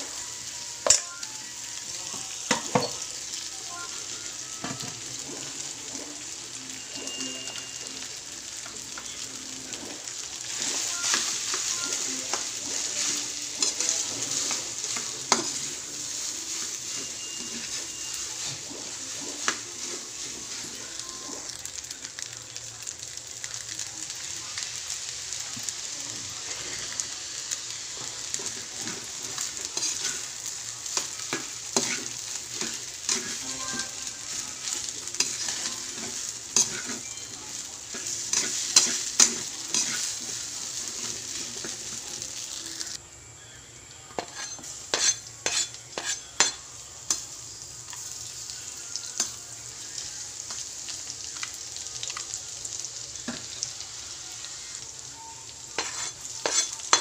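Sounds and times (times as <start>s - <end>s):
food sizzling in a wok: 0.0s - 57.0s
spatula scraping and knocking pan: 44.2s - 46.2s.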